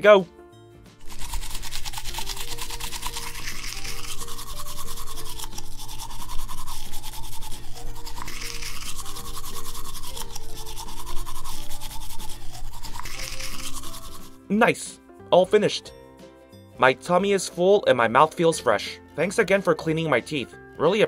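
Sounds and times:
light background music: 0.0s - 21.0s
toy toothbrush scrubbing: 1.0s - 14.4s.

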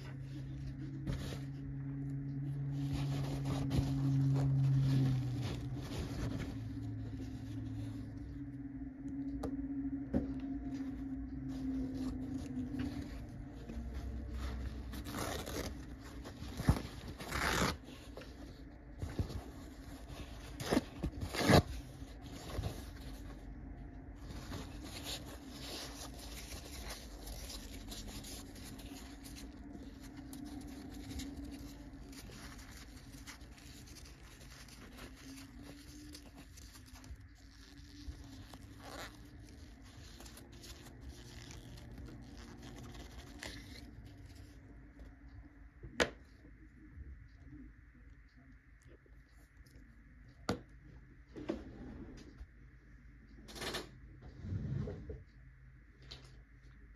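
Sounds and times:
paper towel rustling on plastic: 0.0s - 8.4s, 10.5s - 44.8s.

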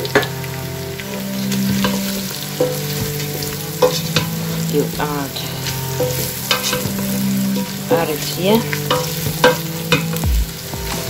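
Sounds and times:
meat sizzling in a pot: 0.0s - 11.0s.

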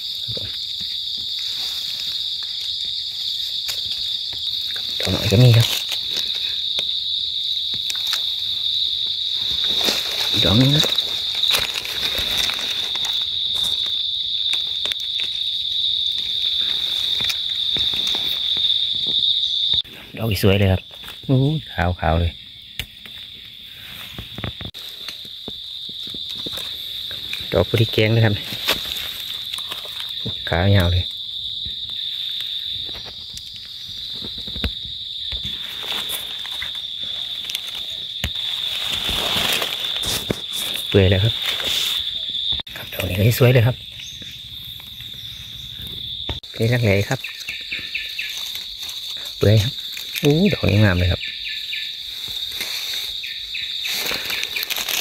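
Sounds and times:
insect buzzing: 0.0s - 19.9s, 31.0s - 42.9s, 43.5s - 55.0s
dry leaf litter crackling: 1.0s - 19.3s, 24.7s - 31.1s, 35.4s - 43.3s, 46.4s - 55.0s.

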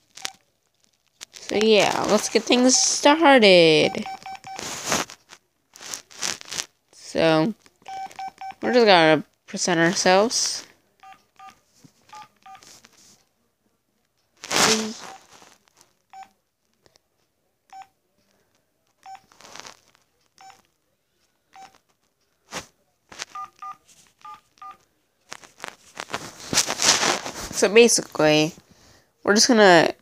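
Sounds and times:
phone keypad beeps: 3.8s - 4.6s, 7.9s - 8.6s, 11.0s - 12.6s, 16.1s - 16.3s, 17.7s - 17.9s, 19.0s - 19.3s, 20.4s - 20.6s, 21.6s - 21.8s, 23.3s - 24.8s
rustle of phone handling: 4.1s - 6.7s, 11.7s - 13.2s, 14.4s - 15.9s, 19.1s - 20.1s, 21.6s - 27.6s.

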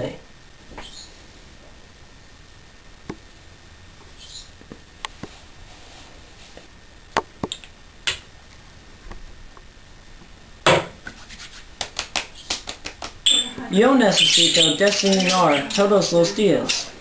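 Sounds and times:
short rubbing sound: 11.1s - 11.7s
razor clicks and taps: 11.8s - 13.2s.

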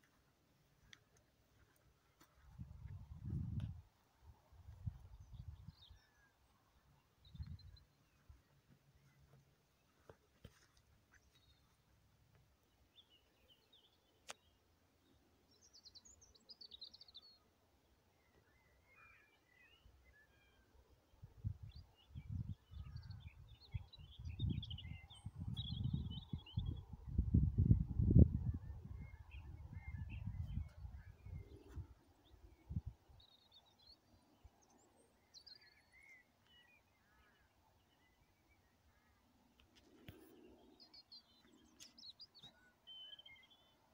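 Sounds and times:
faint songbird singing: 0.0s - 43.9s
rumbling buffets on microphone: 2.5s - 3.8s.

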